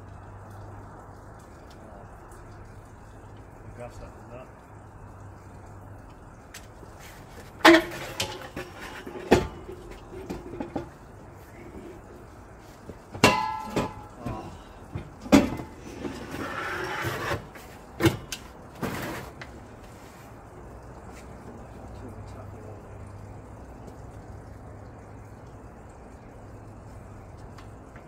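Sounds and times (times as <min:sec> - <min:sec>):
metal clanks and knocks: 0:07.6 - 0:11.1, 0:12.9 - 0:19.3.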